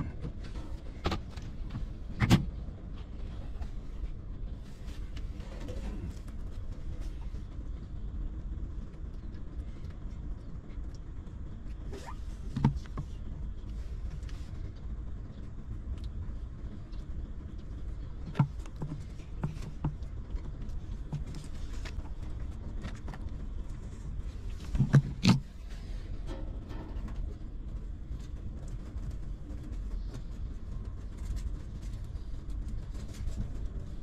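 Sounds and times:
low rumble: 0.0 - 34.0.

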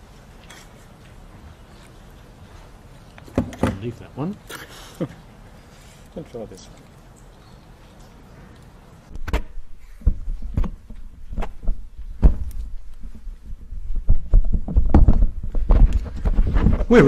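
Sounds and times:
microphone handling thumps: 9.1 - 17.0.

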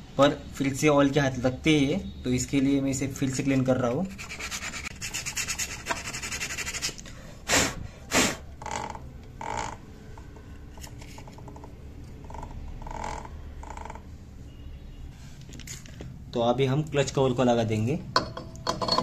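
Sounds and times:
sandpaper rubbing metal: 4.1 - 7.0.

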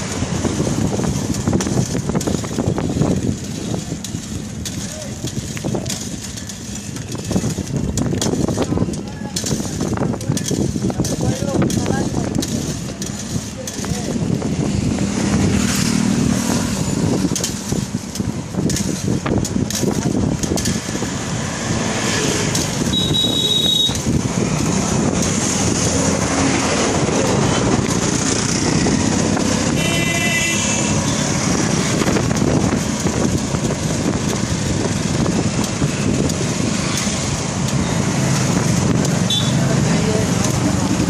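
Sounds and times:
street traffic noise: 0.0 - 41.0
vehicle horn: 22.9 - 24.0, 29.7 - 31.1, 39.3 - 39.6.

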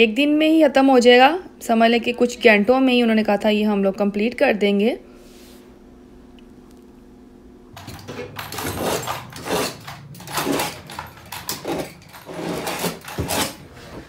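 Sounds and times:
faint steady hum: 0.0 - 14.0
knocks clatter and scraping: 7.8 - 14.0.

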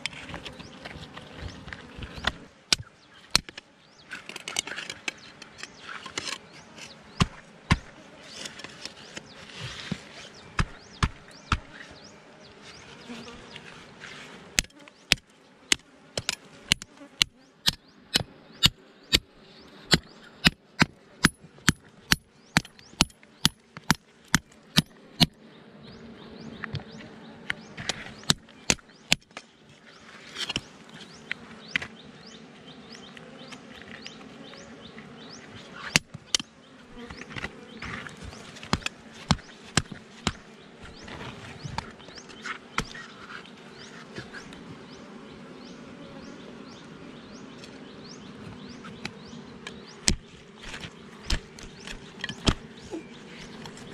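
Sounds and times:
bees buzzing: 0.0 - 53.9
machete chopping soil and rock: 7.2 - 8.9, 10.6 - 11.8, 14.6 - 19.3, 19.9 - 25.4, 27.8 - 29.5, 35.8 - 36.5, 38.6 - 40.4, 50.0 - 52.7.

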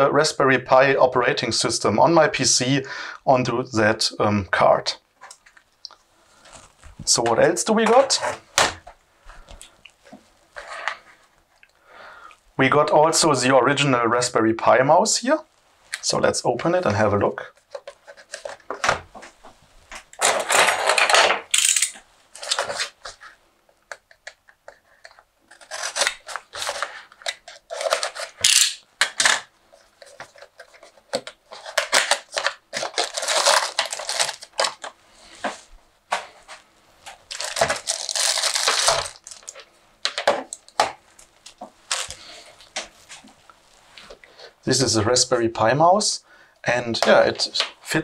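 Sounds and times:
cardboard and packaging rustling: 17.4 - 23.4, 24.8 - 44.2.

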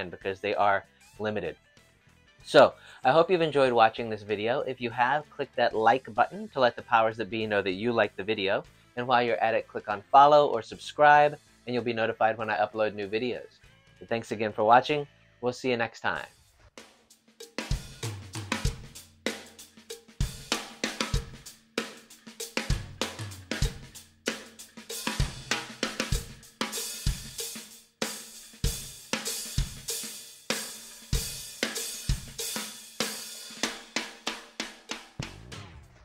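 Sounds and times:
fast drum kit beat: 16.8 - 36.0
low bass notes: 22.7 - 24.0, 35.2 - 36.0.

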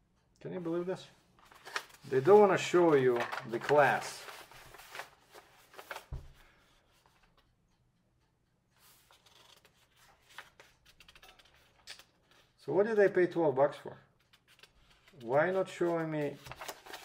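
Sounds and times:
paper pages rustling: 1.4 - 7.4, 8.8 - 12.6, 14.1 - 17.0.

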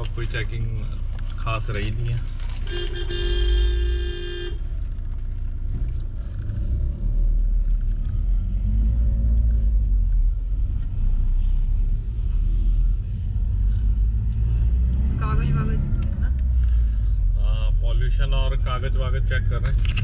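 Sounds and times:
diesel engine rumble: 0.0 - 20.0
road noise inside car: 0.0 - 20.0
car horn: 2.5 - 4.7.

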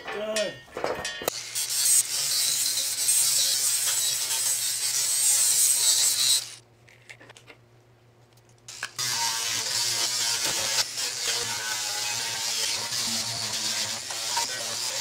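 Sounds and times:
angle grinder grinding metal: 1.3 - 6.6, 8.7 - 15.0.

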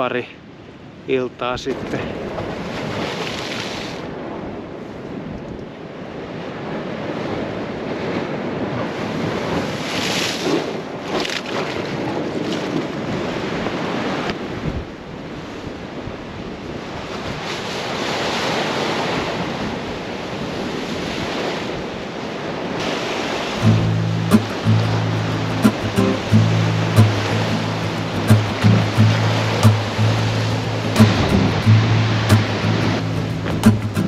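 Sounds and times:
waves splashing against rocks: 1.6 - 34.0
wind buffeting microphone: 4.0 - 17.6.

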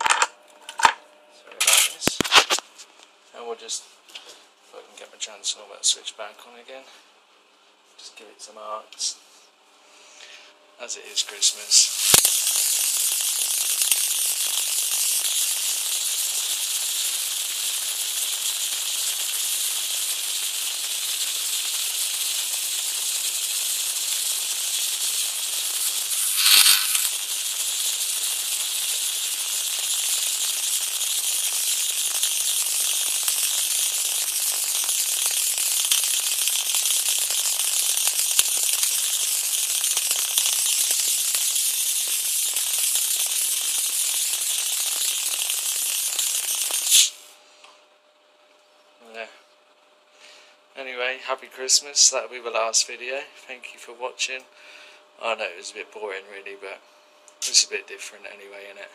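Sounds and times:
electric arc crackling and hissing: 1.6 - 3.0, 10.8 - 47.4, 57.4 - 57.8.

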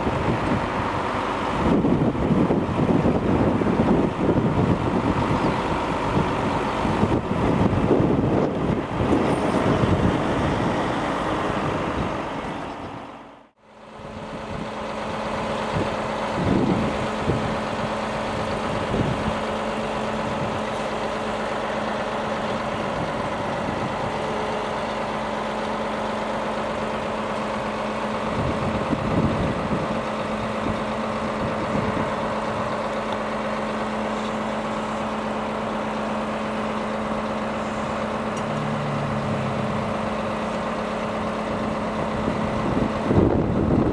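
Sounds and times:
diesel engine idling: 0.0 - 43.9.

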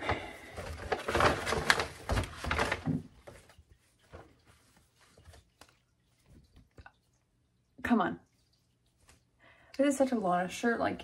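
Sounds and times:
paper bag rustling and crinkling: 0.0 - 6.5
faint handling sounds: 0.0 - 7.2.

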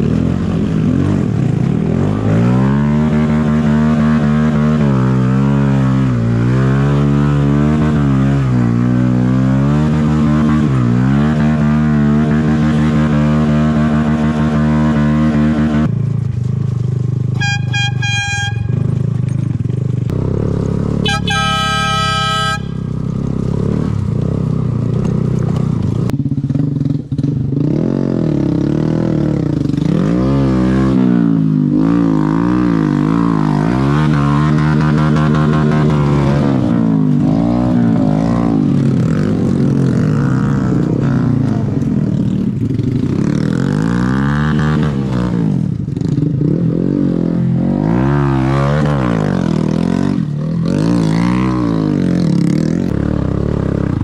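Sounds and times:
engine revving: 0.0 - 15.9, 26.8 - 54.0
horn toots: 17.4 - 19.0, 20.9 - 23.0.

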